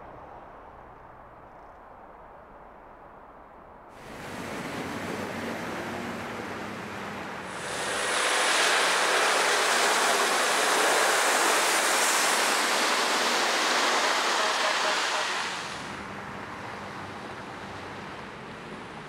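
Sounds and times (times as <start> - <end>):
water and mud spraying from tyres: 4.0 - 16.2
truck engine: 4.0 - 19.0.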